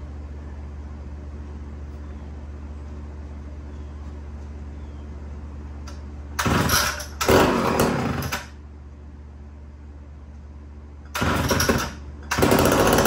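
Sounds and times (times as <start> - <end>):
chainsaw revving: 6.4 - 8.5, 11.2 - 13.0.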